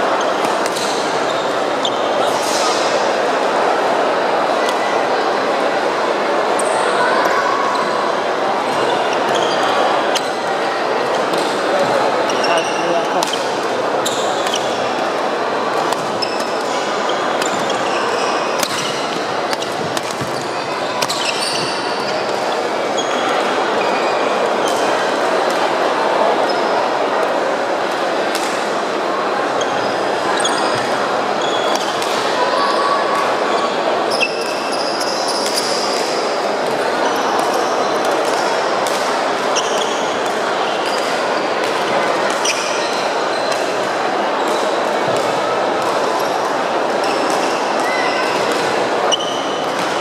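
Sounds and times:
echoing murmur of voices: 0.0s - 50.0s
sports hall din: 0.0s - 50.0s
shoes squeaking on court: 16.0s - 22.4s
racket hitting shuttlecock: 18.6s - 20.4s.

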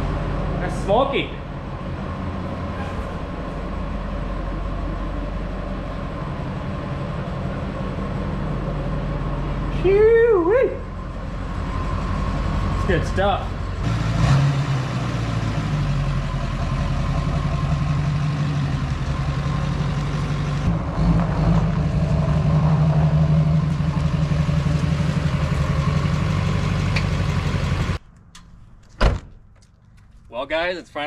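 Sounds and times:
diesel engine humming: 0.0s - 28.2s.

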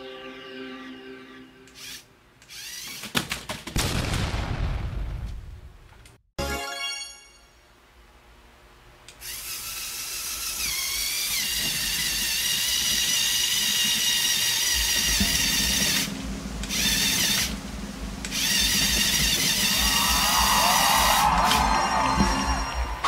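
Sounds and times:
electric motors whining: 9.1s - 23.0s.

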